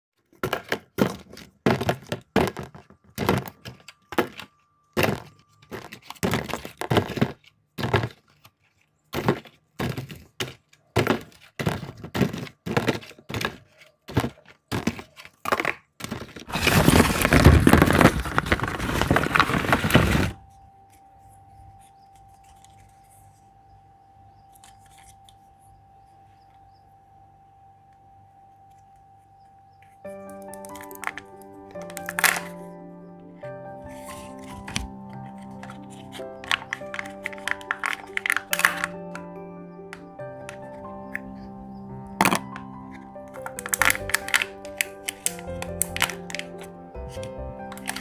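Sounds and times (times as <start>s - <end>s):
plastic eggs clacking into tub: 0.2s - 20.4s, 30.1s - 48.0s
clatter of many plastic eggs: 0.2s - 20.5s, 30.0s - 32.8s, 33.8s - 48.0s
faint steady hum: 20.4s - 30.2s.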